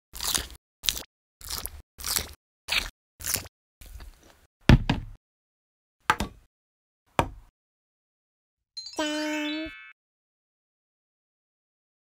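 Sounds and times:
electronic cartoon tone: 8.8s - 10.0s.

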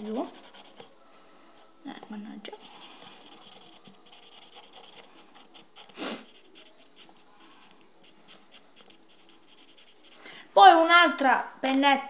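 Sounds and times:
marker scratching on pasta: 0.0s - 1.0s, 2.5s - 10.2s.

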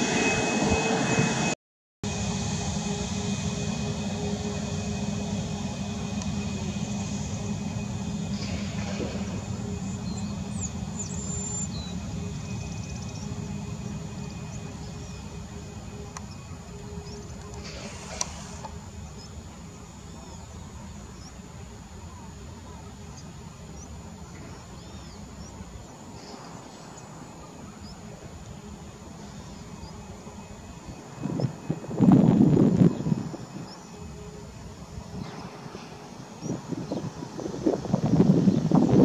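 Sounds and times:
jet engines rumbling: 0.0s - 39.0s
birds chirping: 5.3s - 31.8s.

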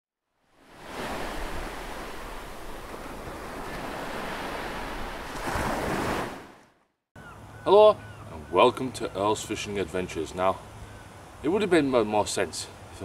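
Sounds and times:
ocean surf washing: 0.6s - 6.6s.

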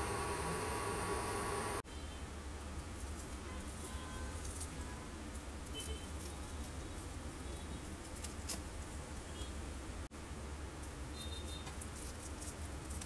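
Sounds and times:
steady low hum: 0.0s - 1.8s.

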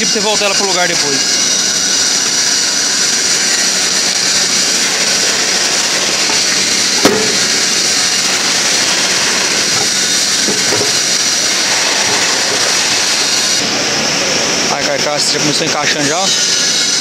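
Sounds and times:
loud machinery noise: 0.0s - 17.0s
metal parts knocking: 6.1s - 13.4s.

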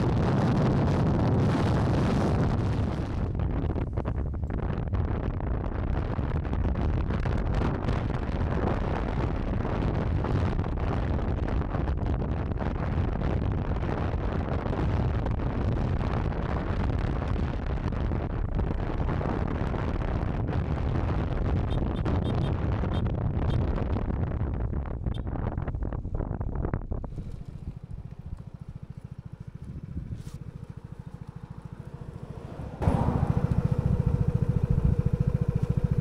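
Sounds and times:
wind rush on microphone: 0.0s - 36.0s
road noise: 18.4s - 25.3s, 27.0s - 36.0s
scooter engine: 27.1s - 36.0s.

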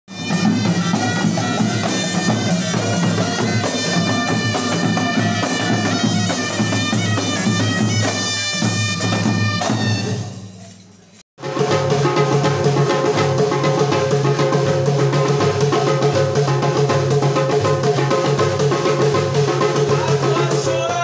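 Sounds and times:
shrill reedy shawm melody: 0.1s - 10.8s
drums beaten in steady rhythm: 0.1s - 21.0s.

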